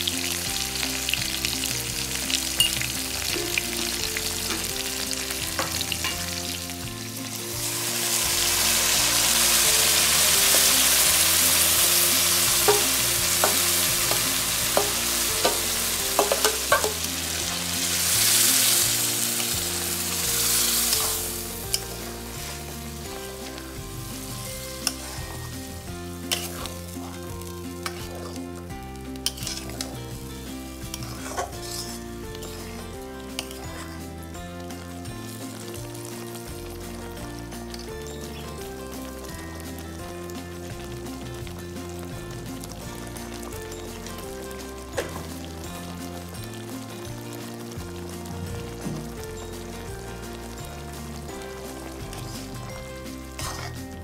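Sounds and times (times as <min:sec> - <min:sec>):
paste hissing in hot oil: 0:00.0 - 0:34.1
food frying in hot oil: 0:00.0 - 0:54.0
metal spatula scraping: 0:09.3 - 0:23.7, 0:24.5 - 0:28.6, 0:29.2 - 0:34.2, 0:53.3 - 0:54.0.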